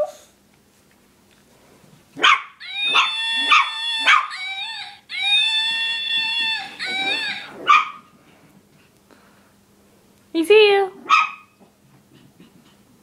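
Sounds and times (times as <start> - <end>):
puppy howling: 2.2 - 8.0
puppy yipping: 2.2 - 8.1, 11.1 - 11.6.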